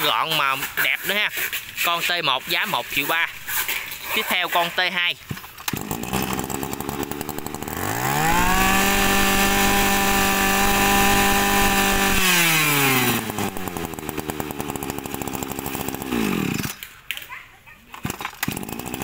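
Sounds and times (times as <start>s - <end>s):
brush cutter engine revving: 5.4s - 16.9s, 17.9s - 19.0s.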